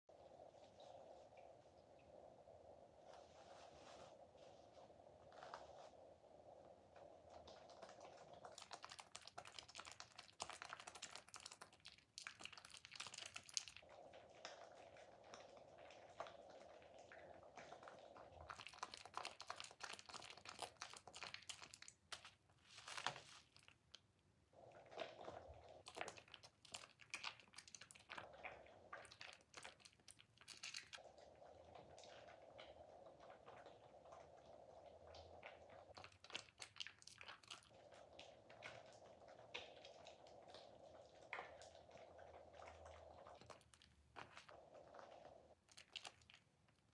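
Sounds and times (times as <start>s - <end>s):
wet soap squishing: 7.3s - 46.9s.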